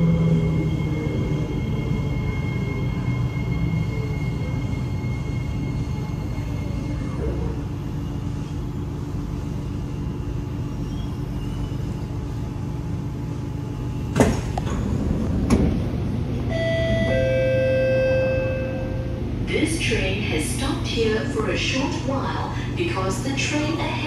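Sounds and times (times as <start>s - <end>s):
low hum inside train car: 0.0s - 24.0s
doors sliding open with clunks: 14.1s - 17.2s
two-note steady tone: 16.5s - 19.2s.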